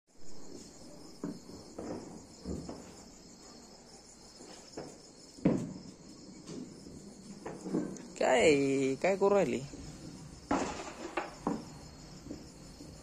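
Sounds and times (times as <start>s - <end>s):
crickets chirring: 0.1s - 13.0s
loud thump: 4.8s - 5.9s, 10.4s - 12.5s.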